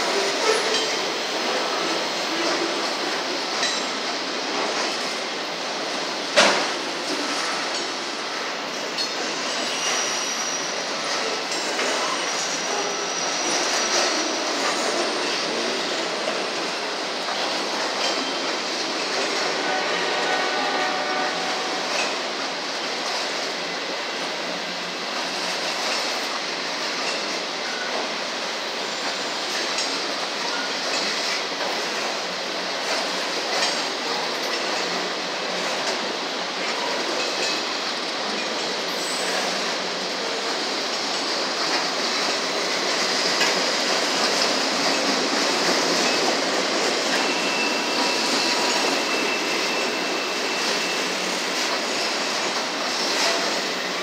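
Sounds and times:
freight cars rumbling on rails: 0.0s - 54.0s
high wheel squeal: 9.2s - 15.9s, 45.6s - 52.4s
faint rail clacks: 29.0s - 50.9s.

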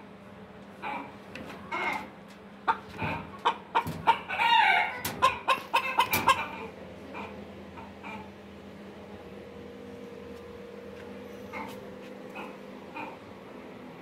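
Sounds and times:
chicken squawking and clucking: 0.8s - 8.4s, 11.5s - 13.3s.

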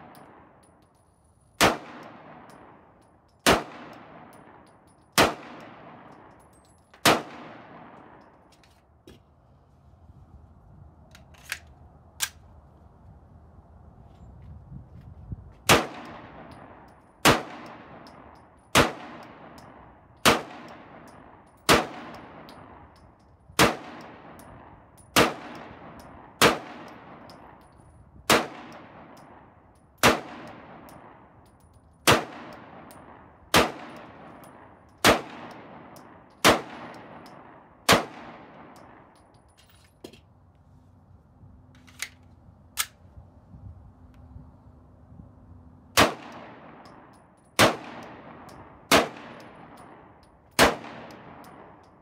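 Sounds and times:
pistol shots with echo: 1.6s - 4.6s, 5.2s - 6.3s, 7.0s - 8.2s, 15.7s - 22.9s, 23.6s - 24.5s, 25.2s - 27.6s, 28.3s - 31.3s, 32.0s - 39.2s, 46.0s - 51.8s
pistol handling clicks: 11.1s - 12.4s, 16.0s - 23.4s, 41.8s - 43.0s, 46.3s - 52.0s.

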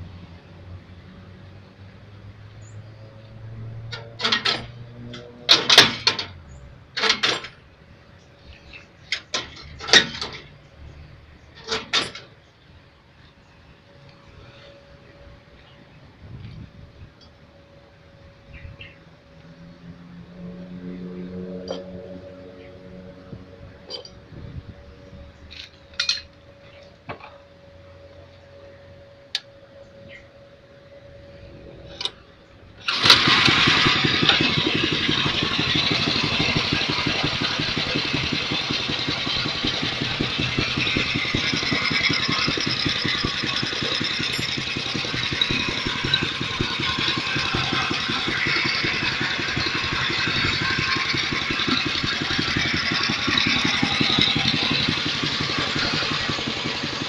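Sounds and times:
small engine running: 0.0s - 7.6s, 16.8s - 57.0s
sharp metallic clicks and knocks: 3.2s - 7.6s, 8.7s - 10.6s, 11.4s - 12.3s, 25.5s - 27.4s, 32.8s - 57.0s.

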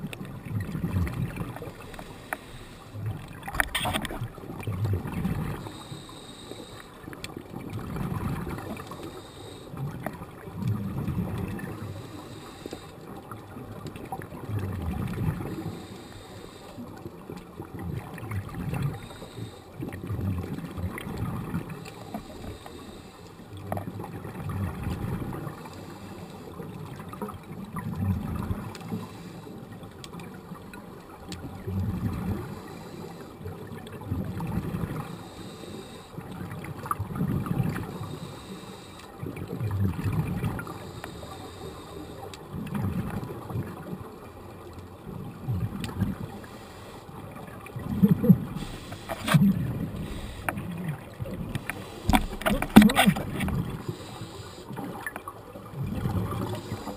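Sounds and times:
underwater regulator bubbles: 0.0s - 12.6s, 45.2s - 56.9s.

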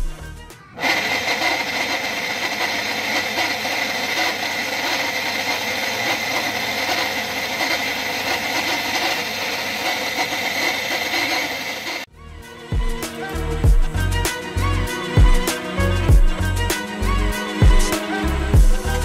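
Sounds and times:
electric water pump grinding: 0.8s - 12.1s.

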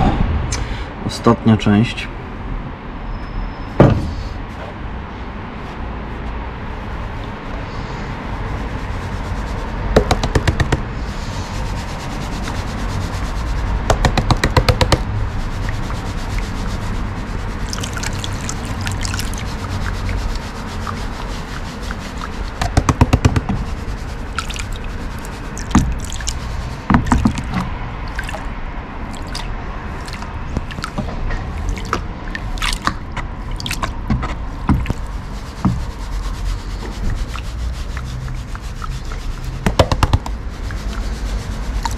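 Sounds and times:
gravel rattling against a pan: 11.5s - 28.5s, 34.6s - 41.9s
water sloshing in a pan: 14.5s - 22.8s, 23.6s - 39.7s, 40.3s - 41.9s.

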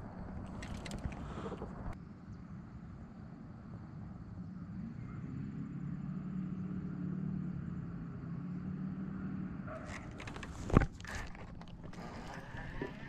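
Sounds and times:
handling clicks and knocks: 9.8s - 12.0s.

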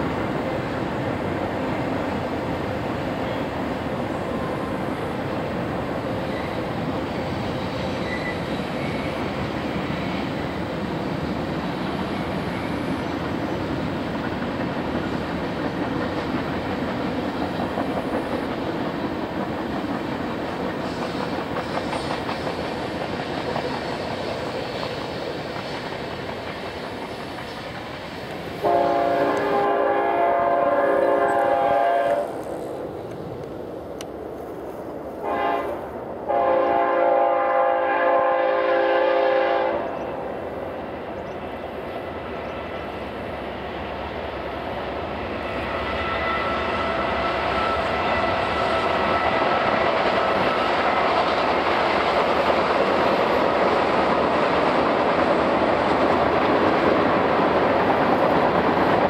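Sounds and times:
freight train wheels rumbling: 0.0s - 59.0s
locomotive horn: 28.6s - 32.4s, 35.2s - 39.9s.

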